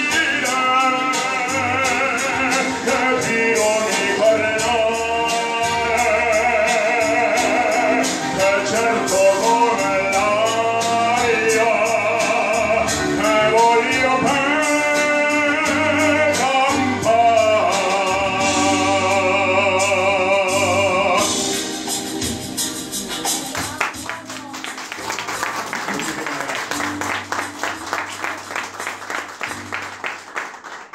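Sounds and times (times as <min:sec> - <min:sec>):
man singing operatically: 0:00.0 - 0:21.6
recorded accompaniment on loudspeaker: 0:00.0 - 0:30.9.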